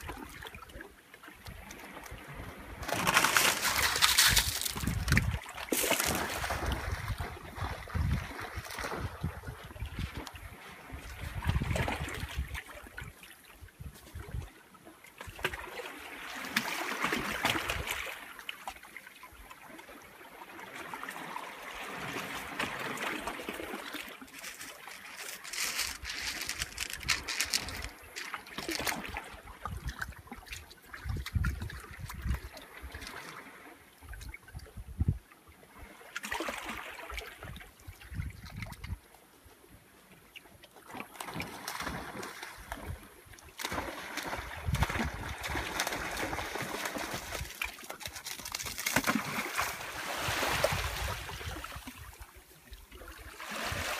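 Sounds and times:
small waves lapping against rocks: 0:00.0 - 0:53.9
dogs splashing through shallows: 0:01.7 - 0:12.5, 0:21.8 - 0:29.4, 0:40.9 - 0:52.1.

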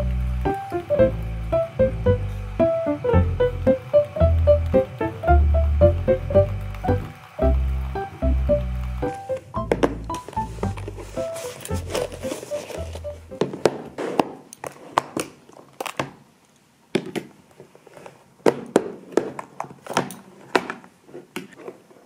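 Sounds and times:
plastic containers knocking on desk: 0:09.6 - 0:10.3.

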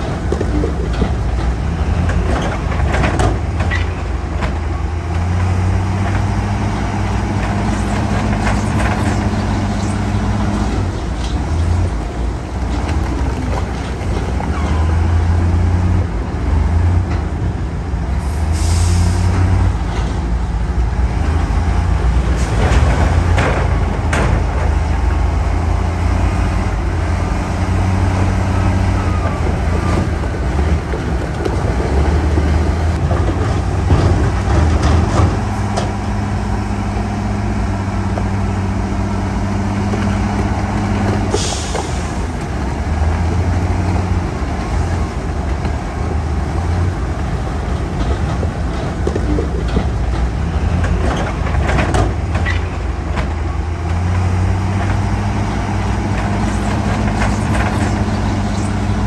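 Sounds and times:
heavy diesel engines droning: 0:00.0 - 0:59.0
air brakes hissing: 0:18.2 - 0:19.4, 0:41.3 - 0:42.3.

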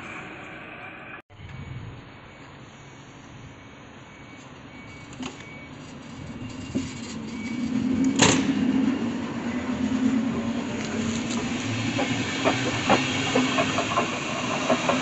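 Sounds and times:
train wheels rumbling: 0:05.7 - 0:15.0.

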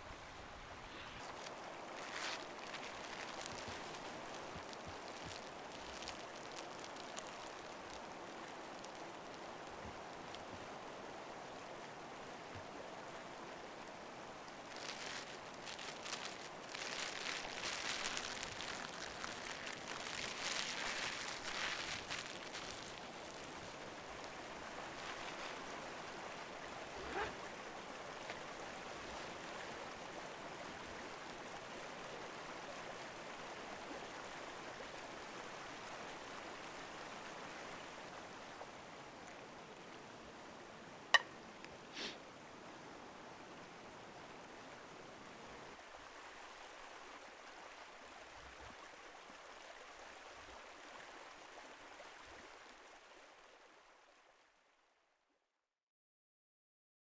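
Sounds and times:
flowing stream: 0:00.0 - 0:55.0.

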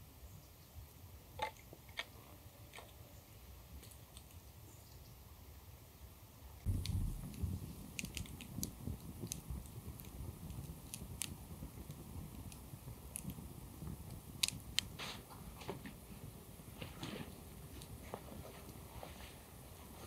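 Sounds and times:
campfire crackling and popping: 0:06.6 - 0:15.0, 0:17.5 - 0:18.9.

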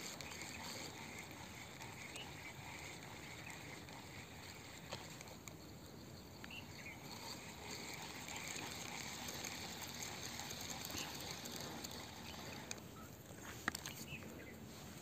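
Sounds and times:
faint chirps: 0:00.3 - 0:13.2
small clicks: 0:06.4 - 0:14.3.

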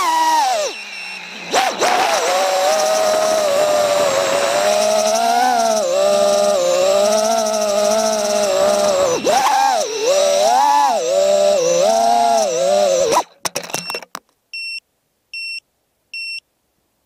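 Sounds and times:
drone motors whining: 0:00.0 - 0:14.0
short high beeps: 0:00.6 - 0:01.5, 0:13.7 - 0:14.8, 0:15.4 - 0:15.6, 0:16.2 - 0:16.4.

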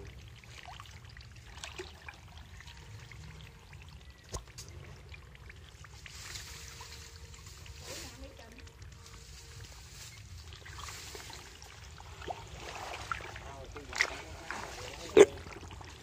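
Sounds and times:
pond water trickling and splashing: 0:00.0 - 0:16.0.

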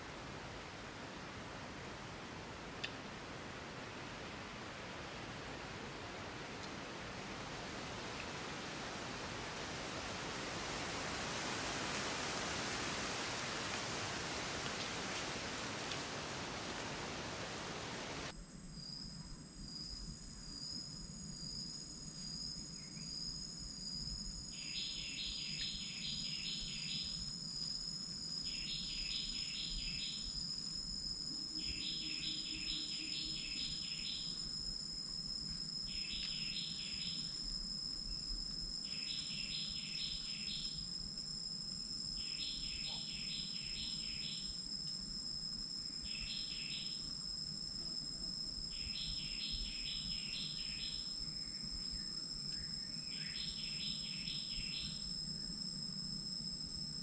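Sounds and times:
insect pulsed chirping: 0:08.0 - 0:57.0
insect high-pitched trill: 0:18.7 - 0:57.0.

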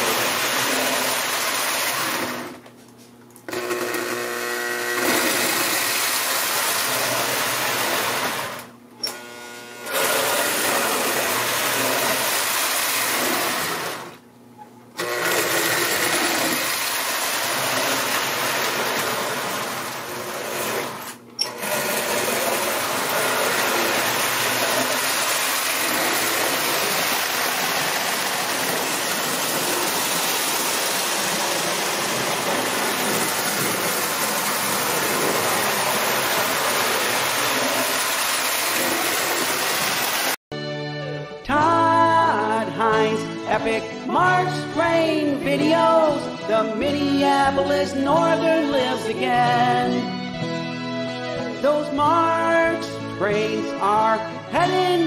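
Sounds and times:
toy train motor whirring: 0:00.0 - 0:02.6, 0:03.5 - 0:14.2, 0:15.0 - 0:40.4.

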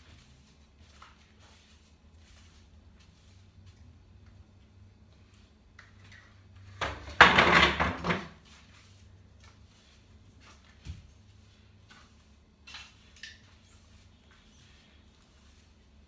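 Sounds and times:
broom sweeping: 0:00.0 - 0:04.2, 0:08.3 - 0:16.0
stool scraping across tiled floor: 0:06.8 - 0:08.8.

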